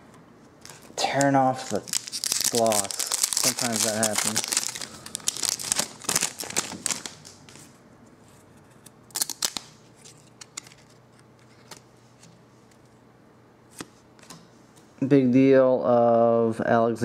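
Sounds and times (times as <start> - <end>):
trading cards clicking and snapping: 0.6 - 7.6, 9.1 - 9.7
foil wrapper crinkling: 0.6 - 7.7, 9.1 - 9.8.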